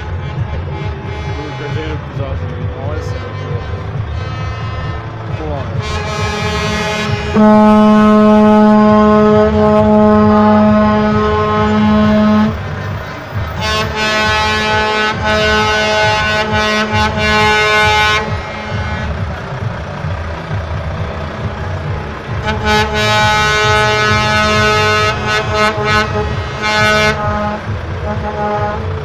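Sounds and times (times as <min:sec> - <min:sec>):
truck air horn blasts: 0:00.0 - 0:02.1, 0:03.0 - 0:19.4, 0:22.2 - 0:29.0
diesel trucks rumbling past: 0:00.0 - 0:29.0.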